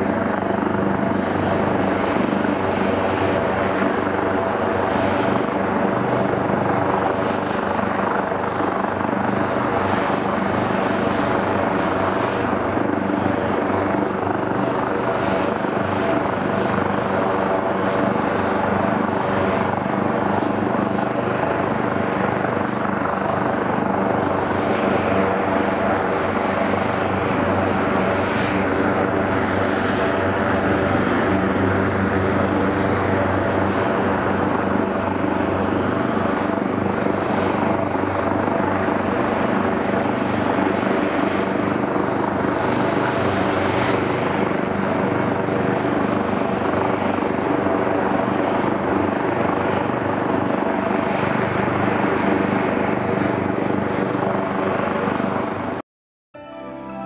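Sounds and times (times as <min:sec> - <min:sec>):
helicopter engine and rotor: 0:00.0 - 0:55.8.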